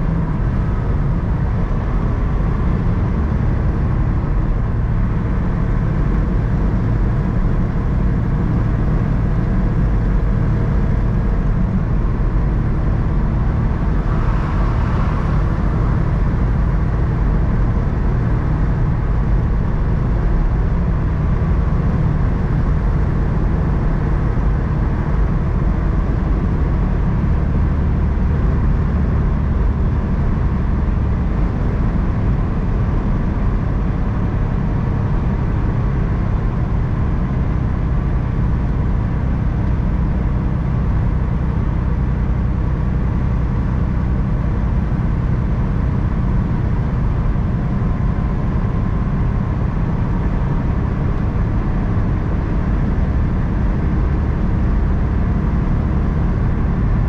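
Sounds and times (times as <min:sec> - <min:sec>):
tyre and road noise: 0:00.0 - 0:27.3
vehicle engine drone: 0:00.0 - 0:57.0.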